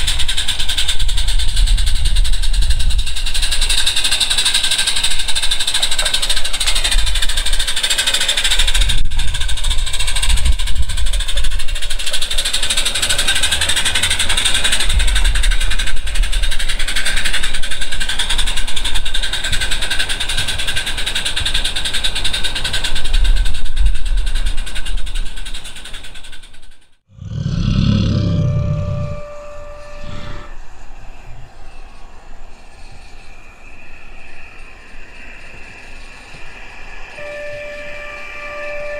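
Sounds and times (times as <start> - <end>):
camera drone whirring: 28.1 - 31.8.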